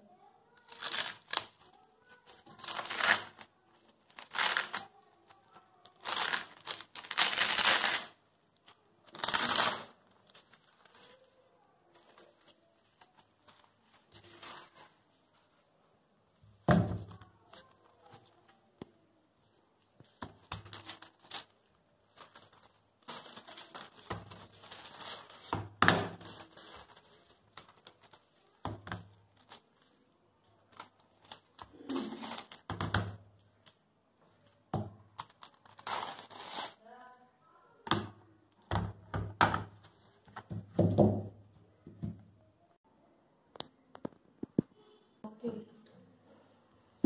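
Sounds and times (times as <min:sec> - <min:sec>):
plastic wrap crinkling: 0:00.5 - 0:15.6, 0:20.0 - 0:33.8, 0:34.4 - 0:37.2
canvas boards knocking on table: 0:40.4 - 0:42.2.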